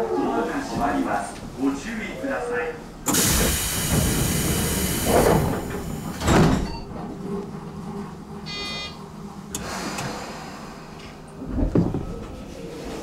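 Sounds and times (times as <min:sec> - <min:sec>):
train doors closing with thuds: 0:03.0 - 0:07.2, 0:11.1 - 0:12.4
buzzer tone: 0:08.5 - 0:09.0.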